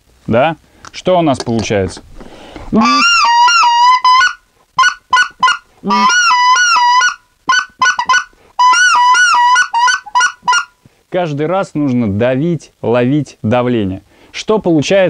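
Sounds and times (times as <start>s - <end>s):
goose call clucks: 2.8s - 10.8s
goose call honks: 2.8s - 10.8s.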